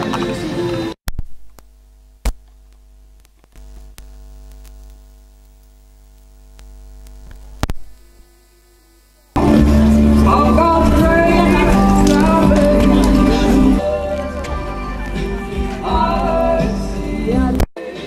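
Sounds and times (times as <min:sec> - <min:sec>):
electrical mains hum: 0:00.0 - 0:13.8
loud music: 0:09.4 - 0:18.0.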